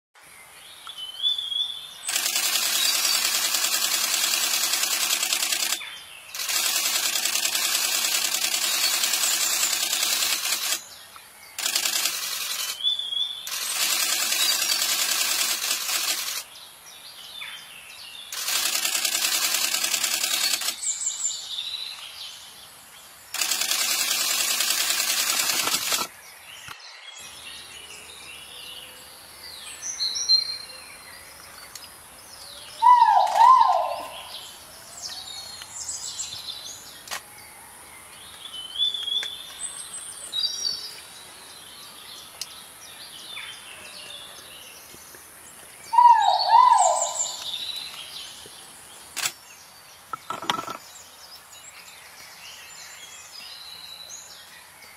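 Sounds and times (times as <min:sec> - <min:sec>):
short rising bird chirps: 0:02.1 - 0:10.8, 0:11.6 - 0:16.4, 0:18.3 - 0:21.2, 0:23.3 - 0:26.1, 0:32.7 - 0:36.3, 0:45.9 - 0:48.0
loud even buzzing: 0:23.4 - 0:26.1.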